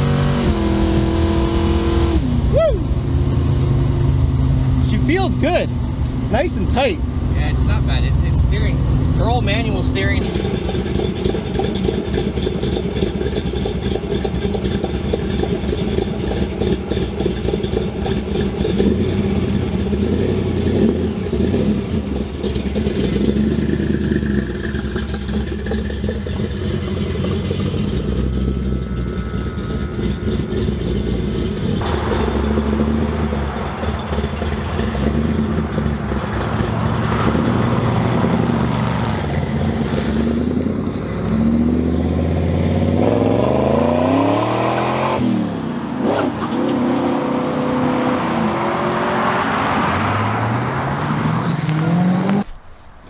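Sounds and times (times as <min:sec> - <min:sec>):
car engine idling and revving: 0:00.0 - 0:53.0.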